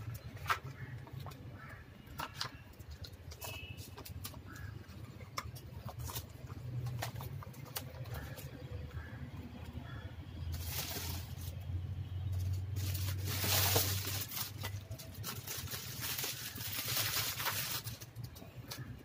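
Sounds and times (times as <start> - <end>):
plastic wrap crinkling: 10.4 - 19.0.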